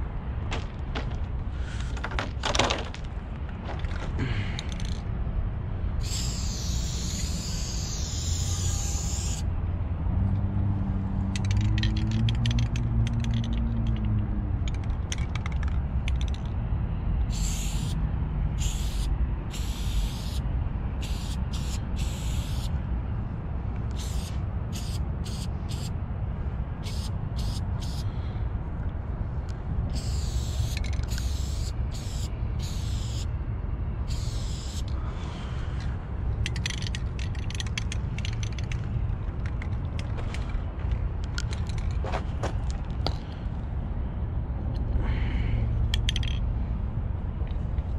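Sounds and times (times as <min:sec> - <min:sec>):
steady low rumble: 0:00.0 - 0:47.9
aerosol spray can hissing: 0:06.0 - 0:09.4, 0:17.3 - 0:18.0, 0:18.6 - 0:20.4, 0:21.0 - 0:22.7, 0:23.9 - 0:25.9, 0:26.8 - 0:28.0, 0:29.9 - 0:33.3, 0:34.1 - 0:34.9.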